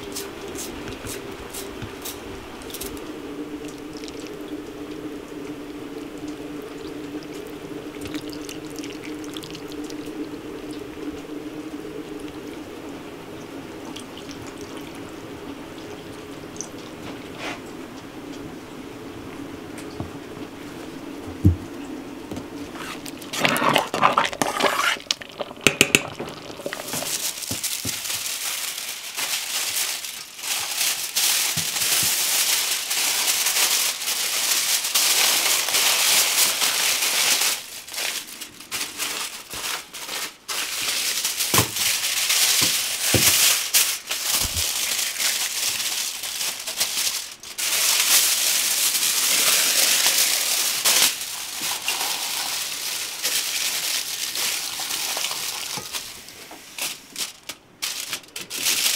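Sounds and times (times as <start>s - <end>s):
foil and paper crinkling: 22.7s - 58.9s.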